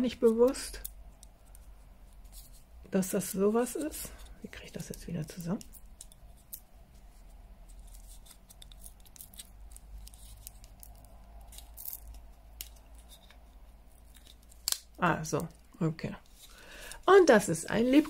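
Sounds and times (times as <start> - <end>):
low steady hum: 0.0 - 18.0
plastic clicks and rustles: 3.8 - 15.6.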